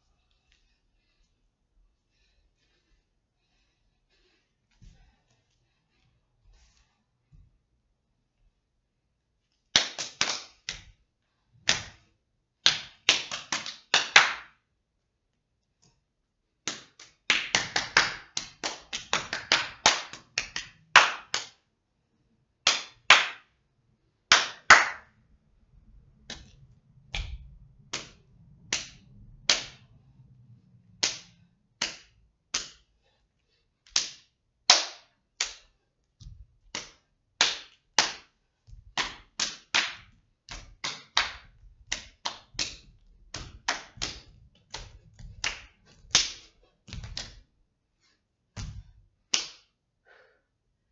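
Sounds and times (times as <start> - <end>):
hand claps and body slaps: 9.6 - 11.0, 11.6 - 14.6, 16.6 - 21.7, 22.6 - 23.6, 24.2 - 25.3, 26.2 - 30.2, 30.8 - 32.9, 33.8 - 47.5, 48.5 - 49.8.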